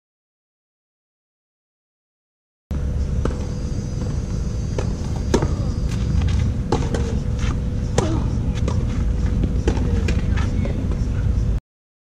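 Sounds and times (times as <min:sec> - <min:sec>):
low rumble: 0:02.7 - 0:11.6.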